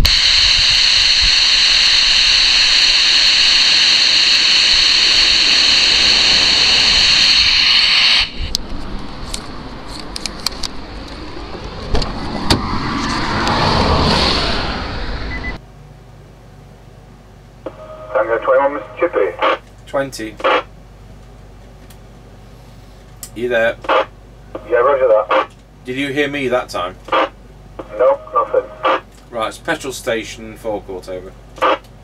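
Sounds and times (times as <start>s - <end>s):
walkie-talkie static hiss: 0.0s - 8.5s, 17.7s - 20.7s, 23.4s - 25.6s, 26.9s - 29.1s, 31.5s - 32.0s
passing car: 8.6s - 15.6s.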